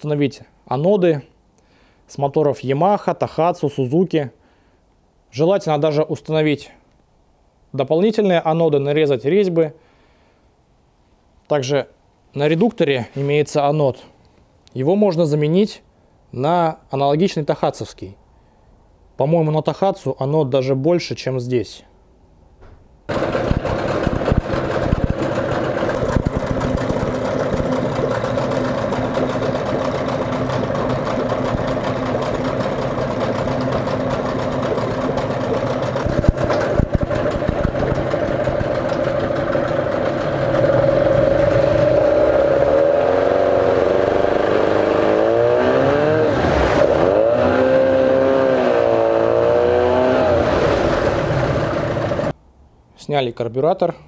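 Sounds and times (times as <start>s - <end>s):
outboard motor revving: 23.1s - 52.3s
propeller churning water: 23.1s - 52.3s.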